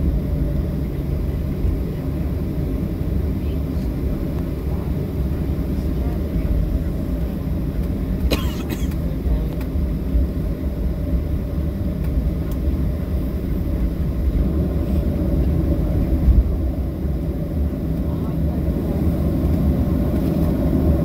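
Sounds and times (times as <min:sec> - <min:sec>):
aircraft cabin engine rumble: 0:00.0 - 0:21.0.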